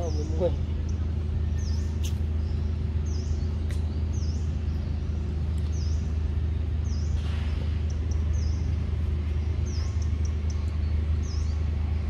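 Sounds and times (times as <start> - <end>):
bird chirping: 0.0 - 12.0
steady low hum: 0.0 - 12.0.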